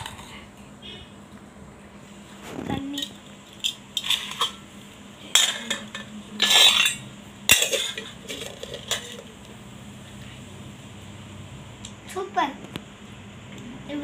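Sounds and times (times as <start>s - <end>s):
metal pots clinking: 3.0s - 4.7s, 5.3s - 9.3s.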